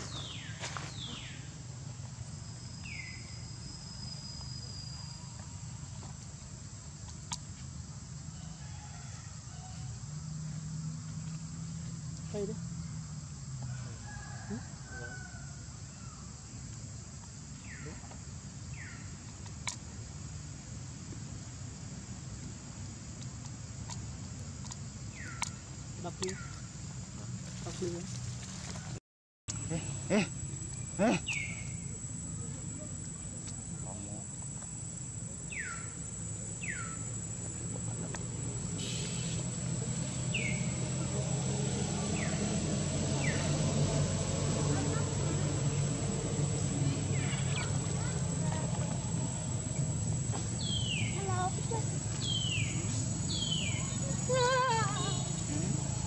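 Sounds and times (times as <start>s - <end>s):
high insect drone: 0.0s - 28.8s, 29.5s - 56.0s
low hum: 29.5s - 56.0s.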